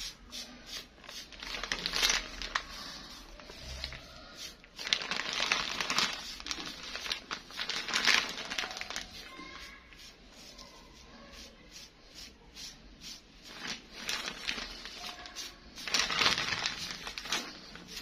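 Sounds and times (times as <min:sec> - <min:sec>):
plastic bag crinkling: 0:01.0 - 0:09.5, 0:13.5 - 0:18.0.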